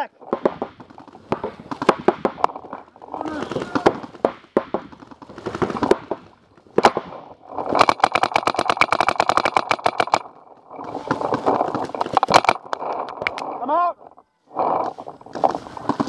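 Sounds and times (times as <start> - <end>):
paintball markers firing: 0.3 - 10.4.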